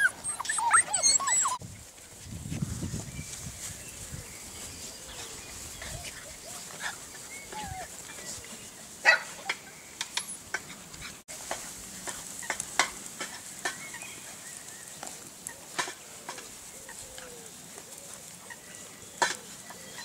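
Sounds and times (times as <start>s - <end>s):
puppies whining squeaks: 0.0s - 1.6s, 7.2s - 8.0s
puppies yipping: 0.0s - 1.6s, 5.8s - 8.4s.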